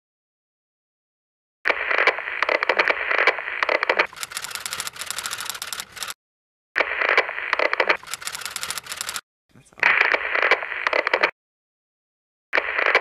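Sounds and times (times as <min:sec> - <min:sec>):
crackling static with clicks: 0:01.7 - 0:06.2, 0:06.8 - 0:09.2, 0:09.8 - 0:11.4, 0:12.6 - 0:13.0
fast high even clicks: 0:01.9 - 0:06.2, 0:07.1 - 0:09.2.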